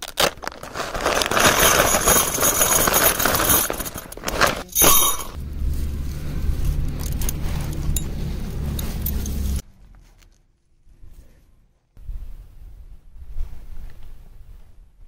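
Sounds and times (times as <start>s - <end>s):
tent fabric rustling: 0.2s - 10.2s
metal tent pegs clinking: 0.7s - 5.4s, 6.0s - 9.6s
steady low hum: 5.1s - 10.1s.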